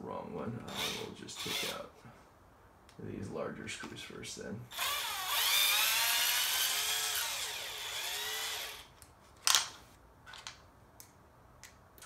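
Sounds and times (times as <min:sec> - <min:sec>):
cordless drill whining: 0:00.7 - 0:01.8, 0:04.7 - 0:08.9.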